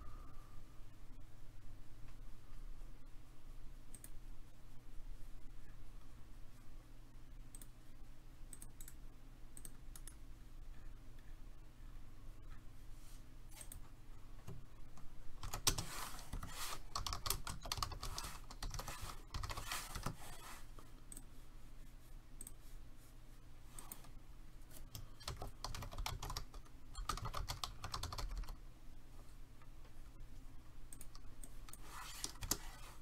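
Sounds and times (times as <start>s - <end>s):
computer keyboard typing: 14.4s - 21.3s, 24.7s - 28.6s, 30.9s - 33.0s.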